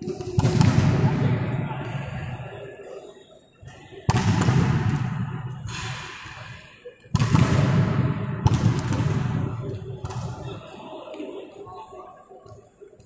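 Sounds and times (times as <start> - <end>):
volleyball smacks in a hall: 0.0 - 2.5, 4.0 - 10.6.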